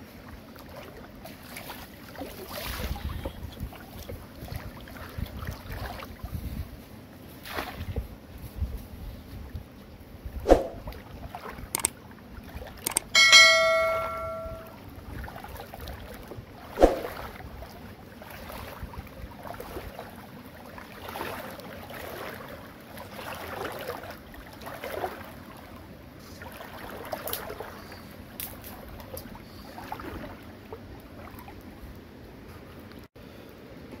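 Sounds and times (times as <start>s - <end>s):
outdoor background noise: 0.0s - 34.0s
sharp click: 12.9s - 14.7s.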